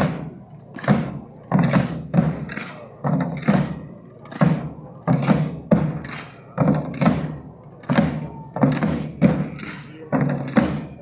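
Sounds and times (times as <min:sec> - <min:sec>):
marching drum beating: 0:00.0 - 0:11.0.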